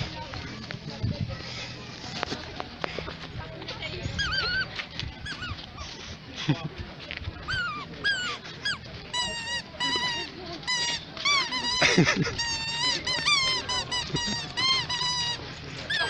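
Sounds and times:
high-pitched squeaks: 4.0 - 6.0, 7.4 - 16.0.

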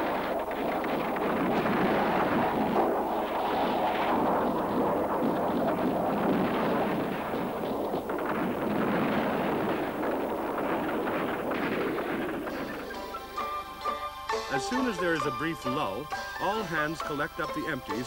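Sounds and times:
guns firing in bursts: 0.0 - 13.9.

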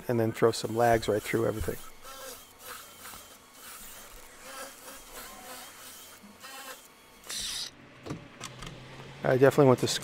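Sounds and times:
drill boring through timber: 0.0 - 7.7.

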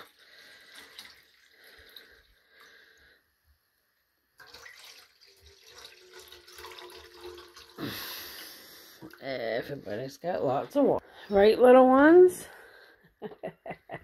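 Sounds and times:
water pouring into metal bowl: 0.0 - 2.9, 4.4 - 10.3.

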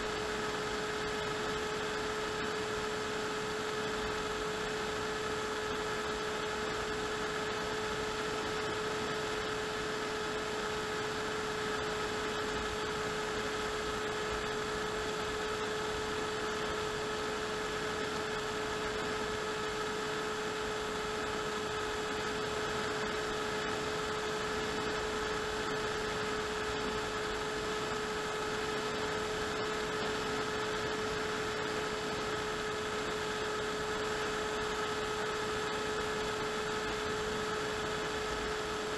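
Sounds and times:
model aircraft motor whine: 0.0 - 38.9.

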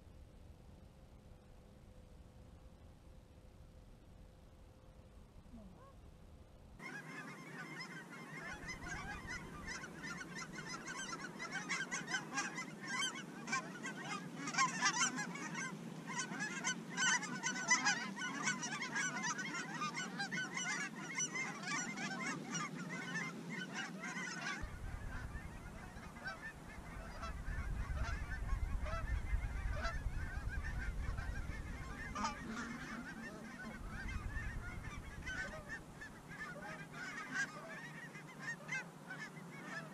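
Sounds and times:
geese honking: 6.8 - 39.9
low rumble: 24.6 - 36.2.

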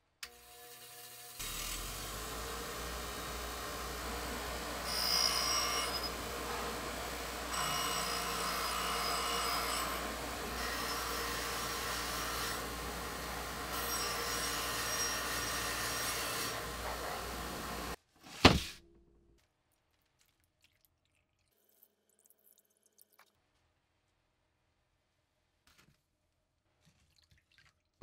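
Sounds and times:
bench grinder scouring metal: 0.3 - 18.0.

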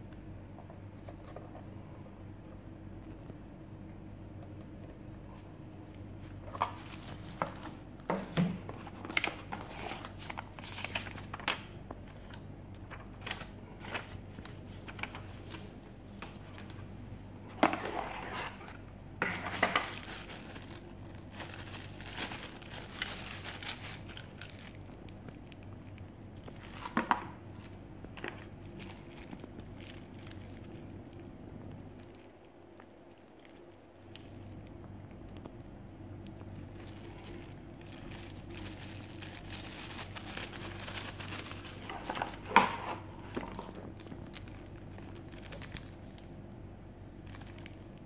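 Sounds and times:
paper and cardboard rustling: 6.2 - 16.8, 17.5 - 24.8, 36.8 - 44.6.

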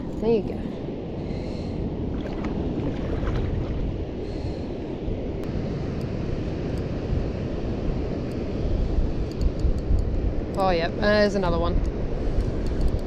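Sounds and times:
wind buffeting microphone: 0.0 - 13.0
water lapping: 1.3 - 4.7.

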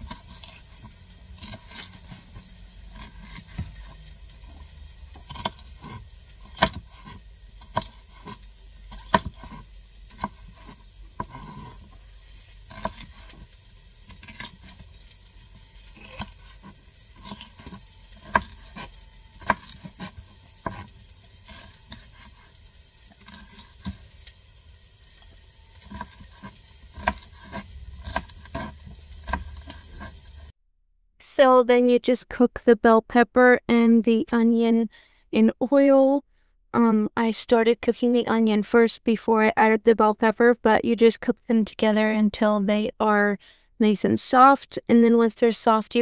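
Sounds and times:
steady low hum: 0.0 - 30.5
knife chopping on cutting board: 5.2 - 11.9, 12.7 - 13.3, 16.0 - 22.4, 25.8 - 30.2.

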